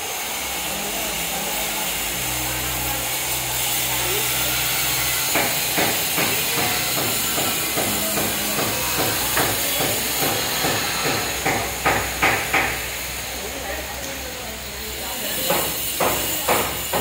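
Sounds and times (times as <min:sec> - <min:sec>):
knocks on building site: 0:05.3 - 0:12.9, 0:15.4 - 0:17.0.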